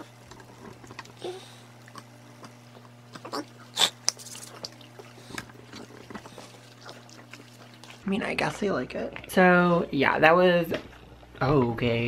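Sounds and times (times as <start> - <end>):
dogs crunching treats: 0.1 - 8.0.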